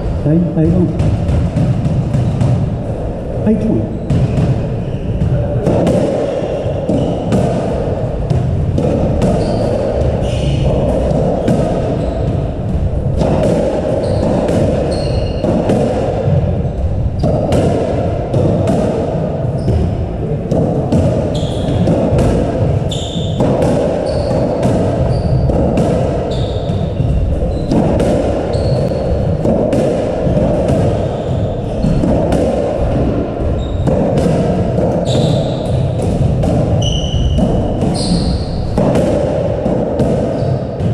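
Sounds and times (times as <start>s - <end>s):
echoing background noise: 0.0s - 40.9s
squash ball hitting rackets: 0.3s - 40.9s
ball thudding against walls: 4.0s - 40.9s
shoes squeaking on wooden floor: 8.9s - 15.7s, 21.1s - 29.4s, 30.2s - 32.0s, 32.8s - 34.2s, 34.9s - 36.0s, 36.7s - 38.8s, 40.3s - 40.9s.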